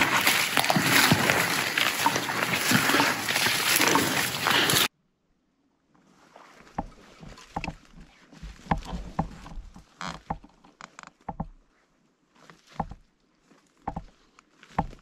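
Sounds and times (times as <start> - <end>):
crunches and rustles in dry brush: 0.0 - 4.9.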